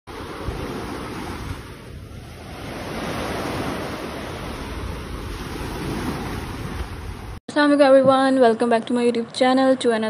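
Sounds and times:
ocean surf rushing: 0.1s - 7.4s.

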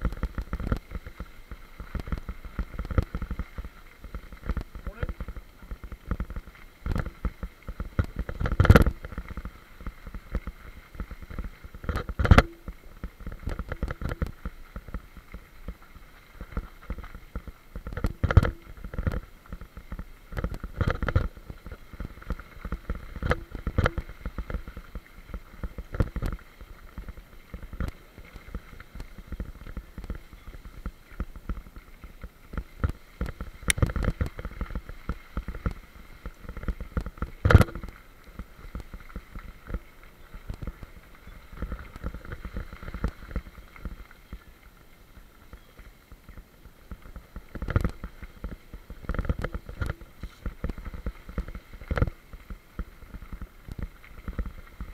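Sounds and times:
bicycle tyres on gravel: 0.0s - 54.9s.

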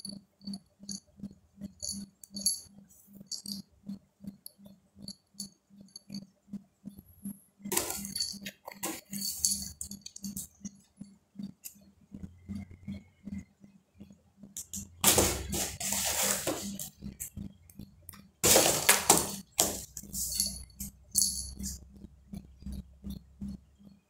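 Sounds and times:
steady low pulse: 9.4s - 15.6s, 16.8s - 18.2s, 21.0s - 24.0s
cat jingling and rustling in box: 15.5s - 16.7s.

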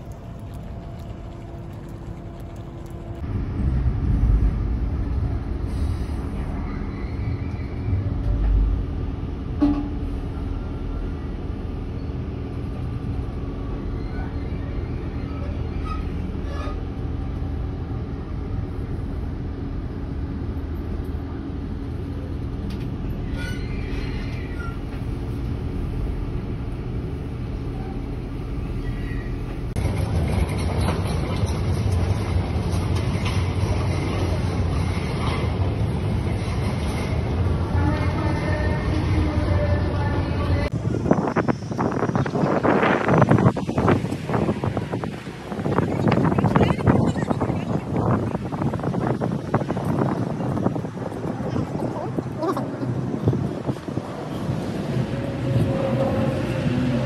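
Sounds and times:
train ride rumble and hum: 0.0s - 57.0s.

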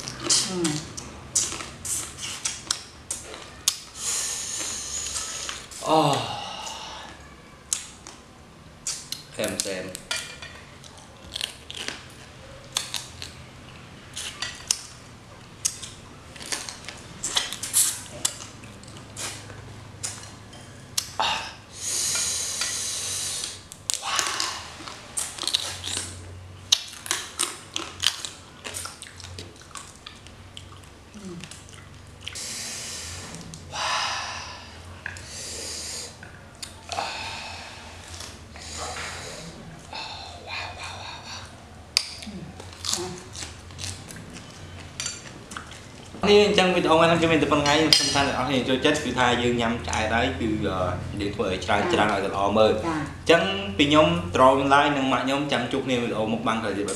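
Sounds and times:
wet chewing and sucking: 0.0s - 5.8s, 15.6s - 20.4s, 21.8s - 33.7s, 38.0s - 46.2s
hissing breath drawn in: 4.0s - 5.8s, 21.7s - 24.9s, 32.4s - 36.2s, 36.9s - 41.5s
crab shells cracking: 23.7s - 30.4s.

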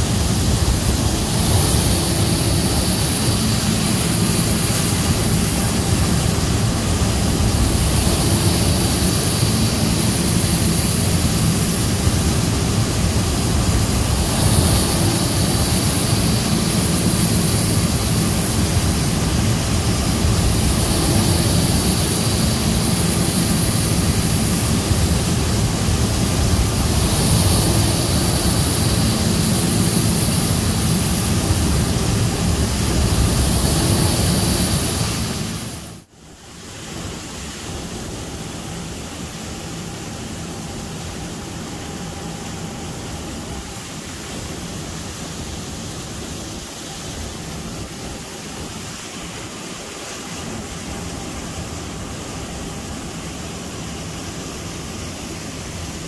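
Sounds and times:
low engine drone: 0.0s - 36.1s
constant hiss: 0.0s - 56.0s.

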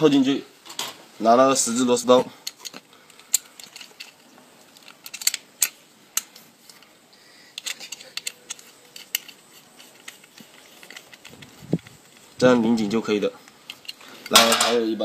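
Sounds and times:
screwdriver clicking and scraping metal: 2.4s - 6.9s, 7.5s - 12.5s, 13.4s - 14.5s.

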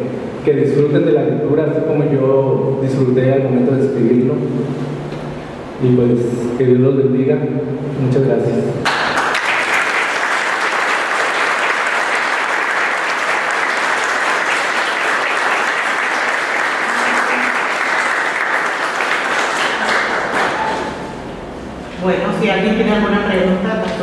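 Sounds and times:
audience applauding: 8.8s - 21.1s.

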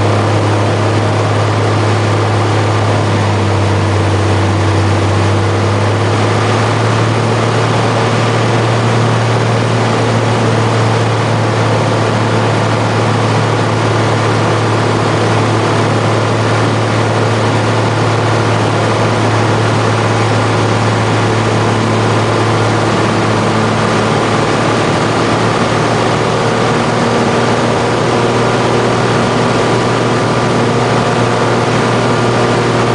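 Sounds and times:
light plane engine drone in cabin: 0.0s - 32.9s.

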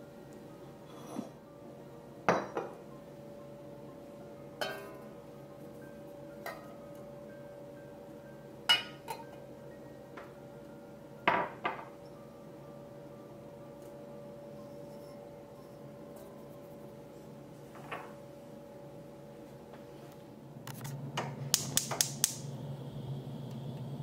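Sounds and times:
glass cup clinking on saucepan: 8.7s - 9.4s.

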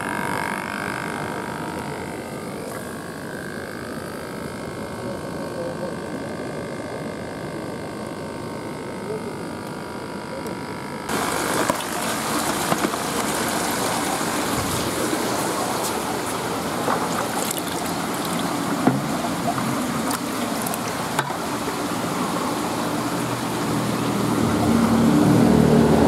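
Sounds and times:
air stone bubbling in water: 11.1s - 23.6s.

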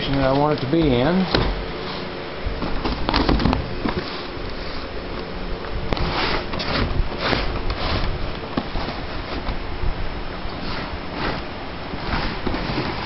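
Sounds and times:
cardboard boxes scraping and knocking: 6.0s - 9.6s, 10.6s - 13.0s.

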